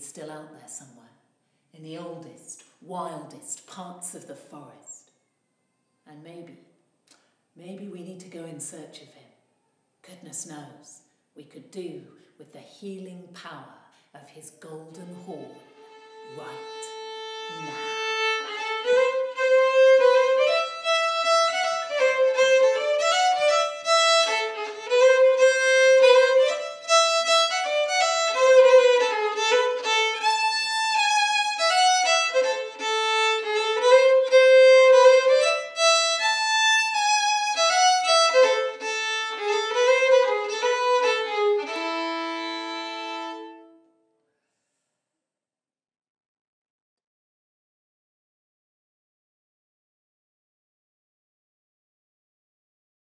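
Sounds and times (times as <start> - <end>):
solo violin melody: 15.2 - 44.0.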